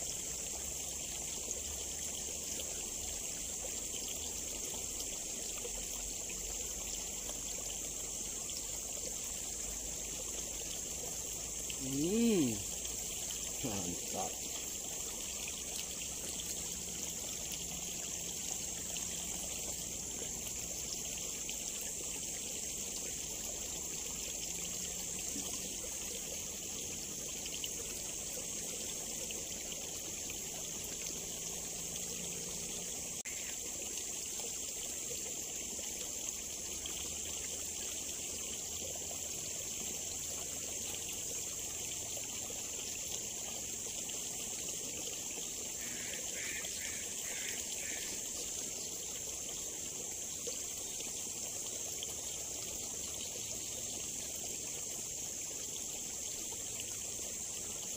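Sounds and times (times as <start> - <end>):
steady high hiss: 0.0 - 57.9
water trickling in ditch: 0.0 - 57.9.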